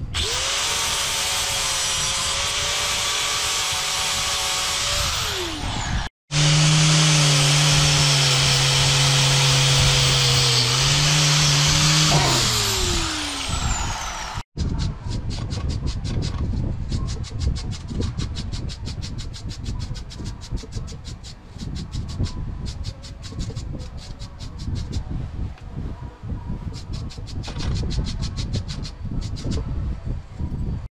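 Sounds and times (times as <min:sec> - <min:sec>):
angle grinder sanding steel: 0:00.0 - 0:14.4.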